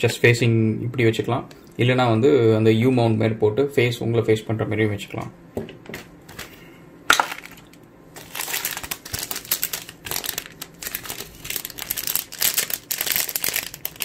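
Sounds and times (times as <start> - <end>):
plastic bags crinkling: 7.1 - 14.0.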